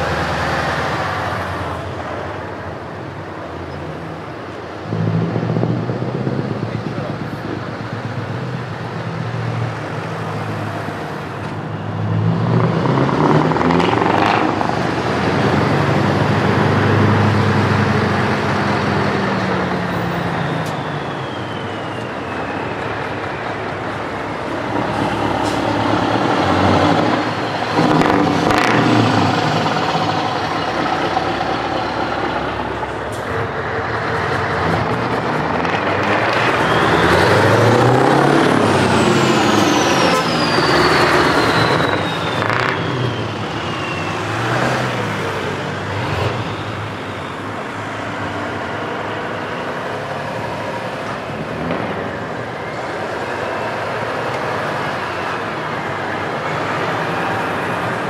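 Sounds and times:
truck diesel engines passing: 0.0s - 58.0s
high whistle: 19.9s - 23.5s, 36.4s - 37.6s, 39.5s - 44.6s.

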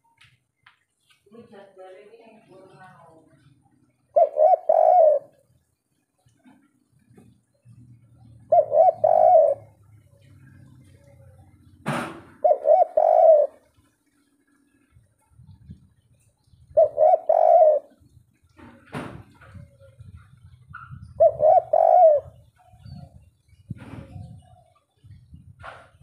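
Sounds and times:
dove cooing: 3.3s - 5.6s, 6.4s - 13.8s, 15.5s - 18.8s, 19.4s - 26.0s.

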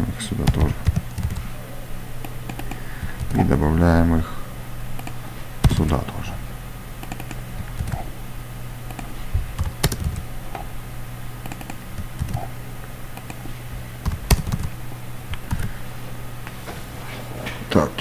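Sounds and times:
steady low hum: 0.0s - 18.0s
computer keyboard typing: 0.3s - 1.5s, 2.5s - 3.5s, 5.0s - 6.1s, 7.0s - 8.1s, 8.9s - 10.3s, 11.4s - 12.5s, 14.0s - 15.8s.

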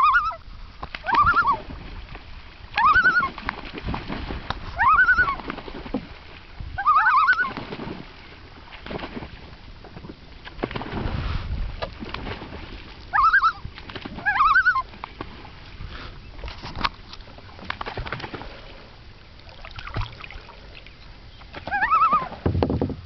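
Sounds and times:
loons calling: 0.0s - 1.6s, 2.8s - 3.4s, 4.7s - 5.4s, 6.8s - 7.6s, 13.1s - 13.6s, 14.2s - 14.9s, 20.6s - 22.4s.

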